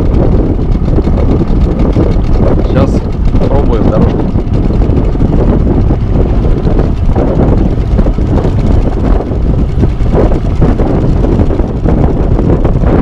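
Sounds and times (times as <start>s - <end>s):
outboard motor running: 0.0s - 13.0s
wind buffeting microphone: 0.0s - 13.0s.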